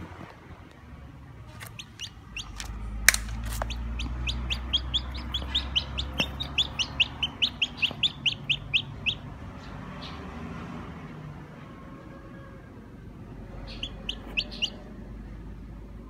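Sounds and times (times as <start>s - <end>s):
chick peeping: 1.6s - 2.8s, 3.4s - 10.2s, 13.7s - 14.9s.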